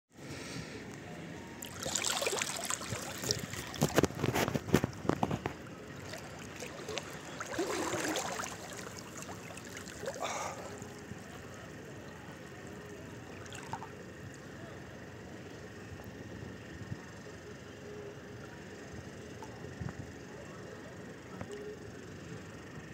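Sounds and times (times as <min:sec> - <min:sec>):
sea water splashing and lapping: 0:01.6 - 0:14.0.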